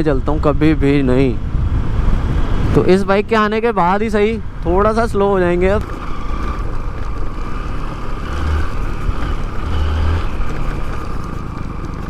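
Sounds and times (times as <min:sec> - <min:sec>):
motorcycle engine running: 0:04.6 - 0:12.0.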